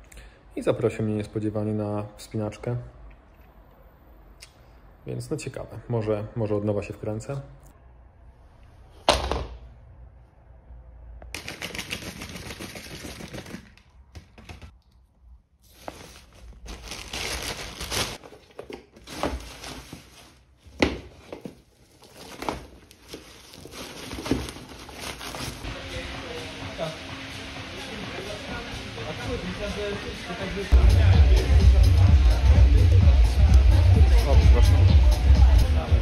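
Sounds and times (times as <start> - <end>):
gear being handled and packed: 15.6 - 25.7
plastic bag rustling: 15.6 - 25.7.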